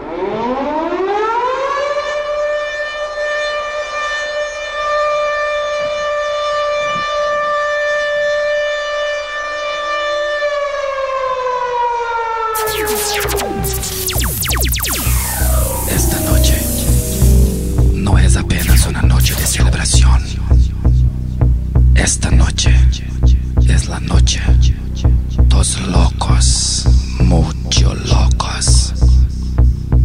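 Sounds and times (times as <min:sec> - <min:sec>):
siren wail: 0:07.4 - 0:20.7
electronic dance music: 0:12.6 - 0:21.1.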